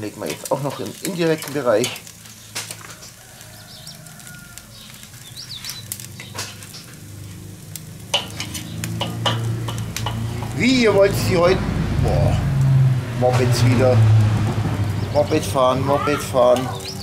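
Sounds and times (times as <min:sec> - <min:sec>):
meat sizzling on a grill: 0:00.0 - 0:17.0
moped engine drone: 0:06.1 - 0:17.0
metal tongs clicking on grate: 0:08.1 - 0:10.6, 0:16.5 - 0:17.0.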